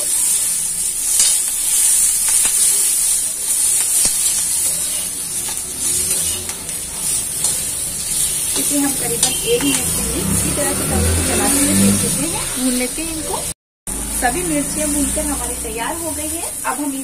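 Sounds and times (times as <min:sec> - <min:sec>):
chillies sizzling in oil: 0:00.0 - 0:17.0
steel spatula scraping and tapping: 0:03.6 - 0:10.0.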